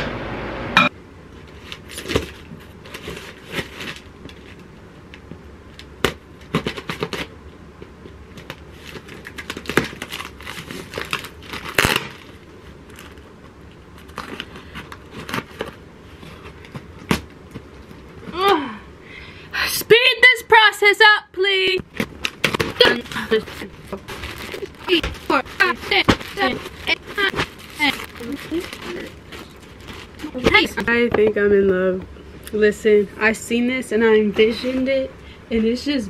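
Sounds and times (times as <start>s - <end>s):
cardboard box tearing: 8.8s - 12.3s, 22.2s - 30.8s.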